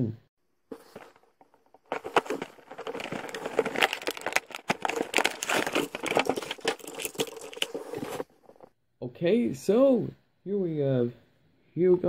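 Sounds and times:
packaging crinkling and crackling: 0:00.7 - 0:08.7.

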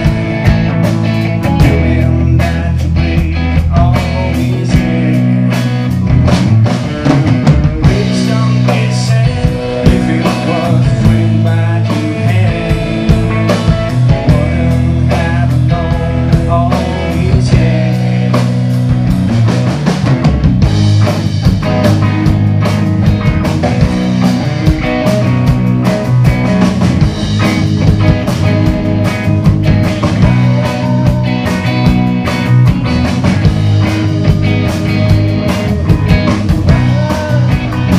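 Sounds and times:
drums: 0:00.0 - 0:37.9
electric guitar: 0:00.0 - 0:37.9
live rock band playing: 0:00.0 - 0:37.9
man singing: 0:01.4 - 0:05.8, 0:06.8 - 0:18.8, 0:30.0 - 0:32.1, 0:34.2 - 0:37.9.

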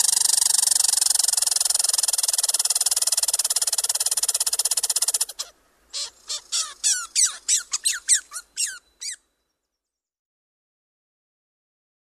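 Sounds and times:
squirrel buzzy rattle: 0:00.0 - 0:05.4
squirrel squeaky notes: 0:05.4 - 0:09.2.

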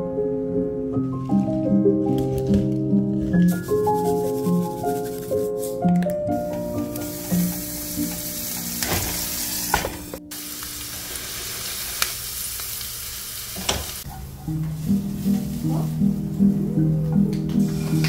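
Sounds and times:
soft background music: 0:00.0 - 0:11.2, 0:14.1 - 0:18.0
food sizzling in a pan: 0:06.6 - 0:16.4.

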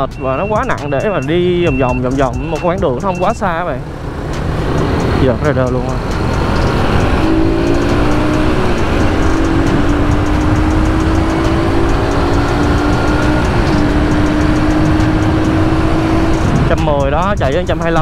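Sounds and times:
motorcycle engine running: 0:02.0 - 0:18.0
wind noise: 0:05.9 - 0:17.8.

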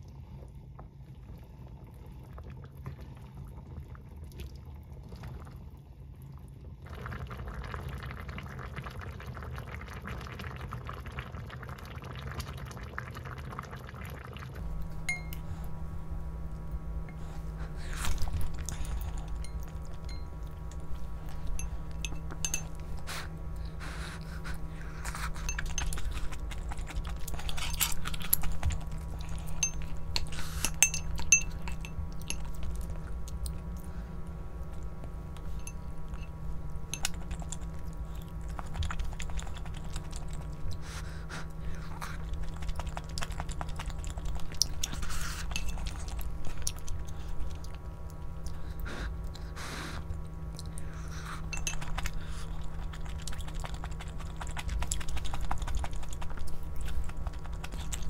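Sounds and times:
chewing: 0:14.6 - 0:58.0
steady low hum: 0:14.6 - 0:58.0
utensils clinking on dishes: 0:21.4 - 0:23.0, 0:25.3 - 0:26.4, 0:29.3 - 0:32.6, 0:44.8 - 0:46.2, 0:51.5 - 0:52.2.

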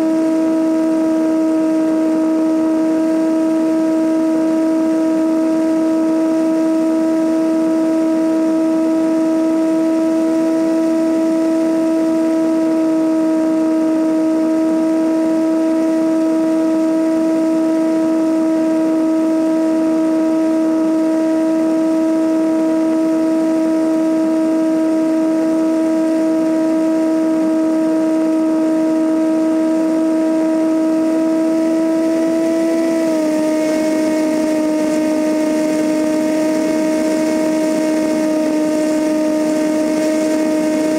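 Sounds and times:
light aircraft engine droning: 0:30.8 - 0:40.9.

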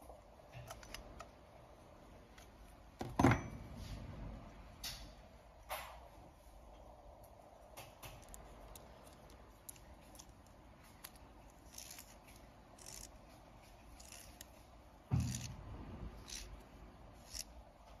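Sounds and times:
metal rings clicking and scraping: 0:08.0 - 0:15.6.

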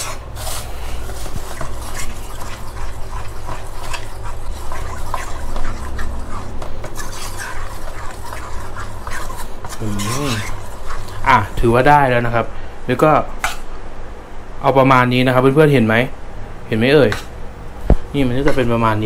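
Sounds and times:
metal spoon scraping batter bowl: 0:00.0 - 0:11.8.

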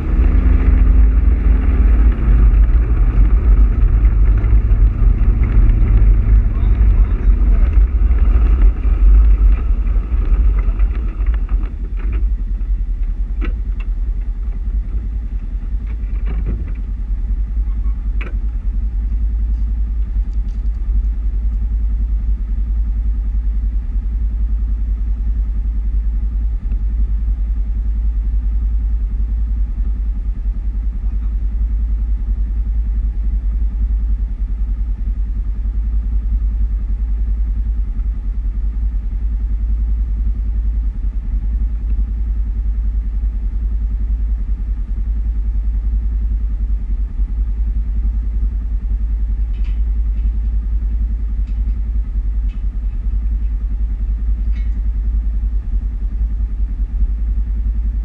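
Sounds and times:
engine idling: 0:00.0 - 0:58.0
sharp clicks and knocks: 0:02.0 - 0:12.4, 0:13.0 - 0:15.0, 0:15.8 - 0:16.9, 0:18.2 - 0:18.6, 0:49.5 - 0:50.4.

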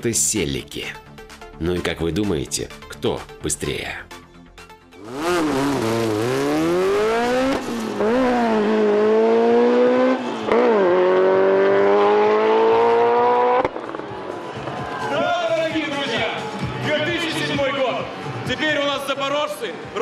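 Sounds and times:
racing car engine at full throttle: 0:05.0 - 0:14.7.

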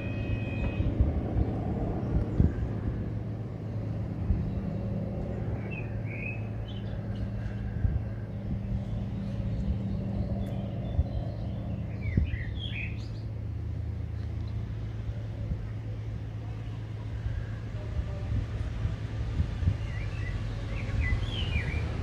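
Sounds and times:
small birds chirping: 0:00.0 - 0:13.4, 0:19.6 - 0:22.0
steady low hum: 0:00.0 - 0:22.0.

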